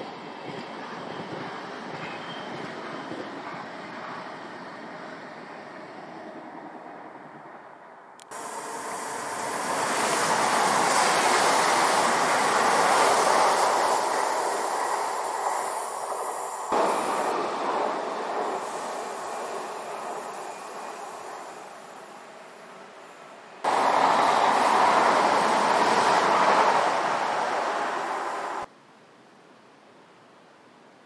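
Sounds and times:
train wheels rushing on rails: 0:08.3 - 0:28.7.

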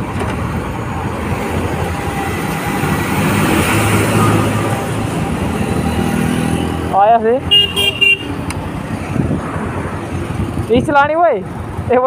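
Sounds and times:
highway traffic rumble: 0:00.0 - 0:12.0.

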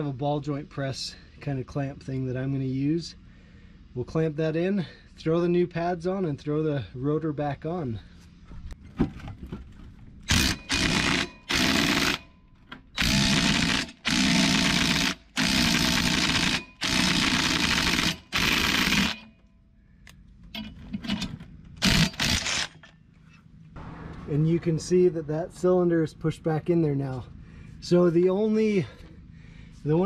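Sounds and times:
cordless drill running: 0:10.3 - 0:12.2, 0:13.0 - 0:19.3, 0:21.8 - 0:22.9.

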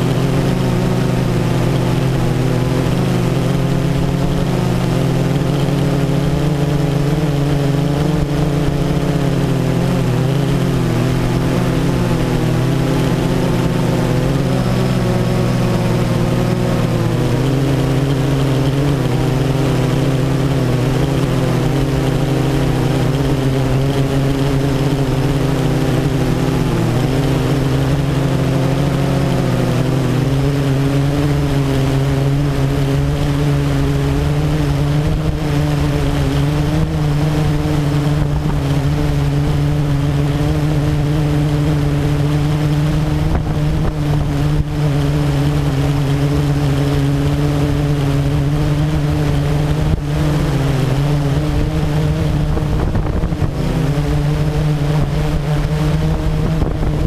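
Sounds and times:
quadcopter motors droning: 0:00.0 - 0:57.0.

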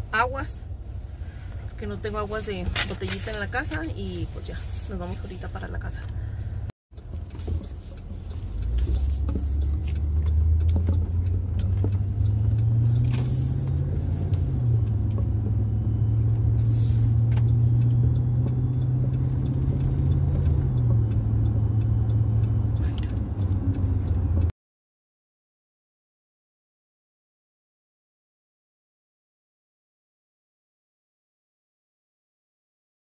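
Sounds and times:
car engine hum: 0:00.0 - 0:24.5
road noise inside car: 0:00.0 - 0:24.5.

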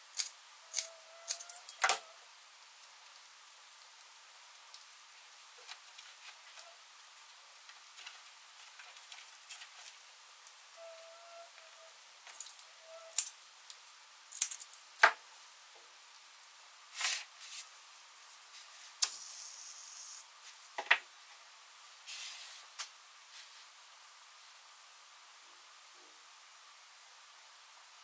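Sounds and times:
brief hisses: 0:19.0 - 0:20.2, 0:22.1 - 0:22.6.

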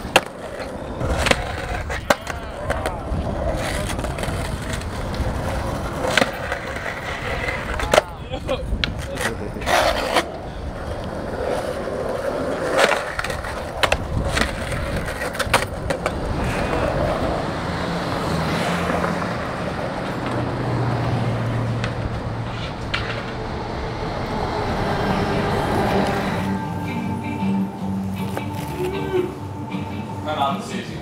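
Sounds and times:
skateboard clacking on pavement: 0:00.0 - 0:20.6, 0:21.5 - 0:23.5
skateboard wheels rolling on concrete: 0:00.0 - 0:31.0
street traffic: 0:00.0 - 0:31.0
bus engine hum: 0:16.0 - 0:31.0.

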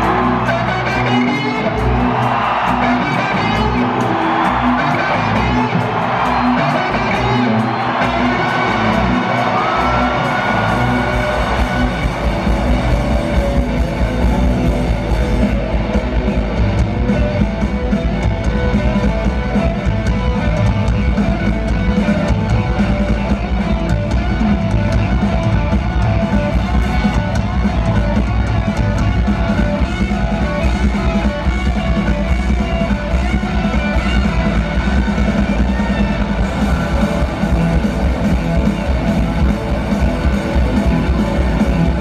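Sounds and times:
drum kit: 0:00.0 - 0:42.0
electric guitars: 0:00.0 - 0:42.0
live rock band: 0:00.0 - 0:42.0.

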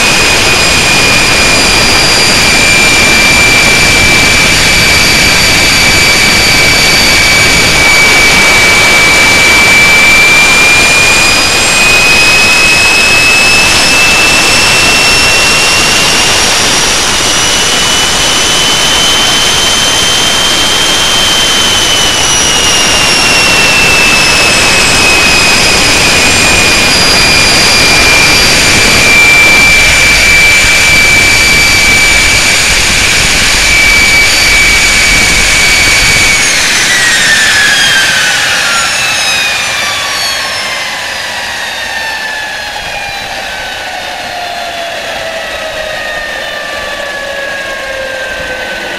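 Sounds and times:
jet engine roaring: 0:00.0 - 0:48.9
jet engine whine: 0:00.0 - 0:48.9.

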